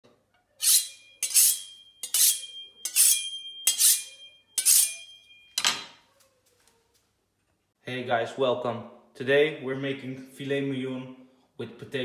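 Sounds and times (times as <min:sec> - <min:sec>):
knife scraping on honing rod: 0:00.6 - 0:05.2.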